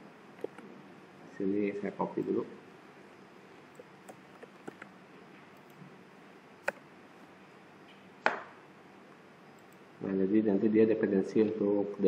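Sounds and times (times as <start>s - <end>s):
mouse and keyboard clicks: 3.8s - 4.9s, 6.6s - 6.8s.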